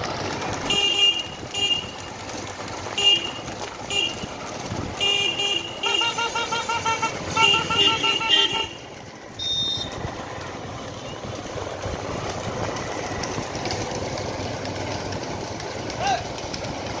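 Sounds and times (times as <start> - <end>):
road noise: 0.0 - 17.0
vehicle engine running: 0.0 - 17.0
vehicle horn tooting: 0.6 - 2.2, 2.8 - 4.4, 5.0 - 10.0
short high beep: 9.4 - 9.9.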